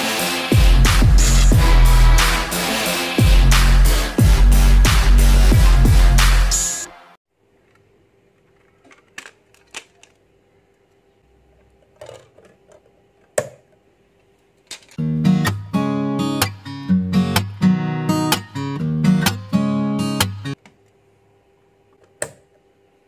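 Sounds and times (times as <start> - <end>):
strummed acoustic guitar music: 15.0 - 20.6.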